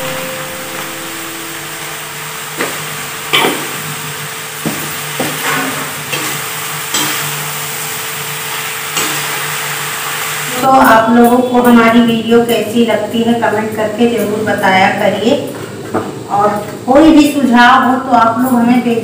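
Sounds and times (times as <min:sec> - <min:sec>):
vegetables sizzling in a pan: 0:00.0 - 0:11.4.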